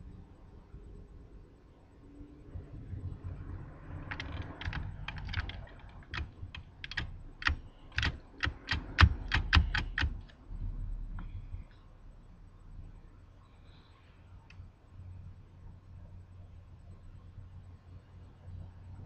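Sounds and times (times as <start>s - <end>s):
sharp clicks: 4.0s - 10.4s.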